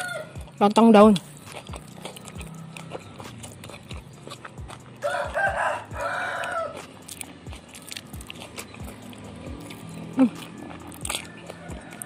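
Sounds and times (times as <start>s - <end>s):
rooster crowing: 0.0s - 0.4s, 5.0s - 6.9s, 11.1s - 12.0s
person chewing: 0.0s - 12.0s.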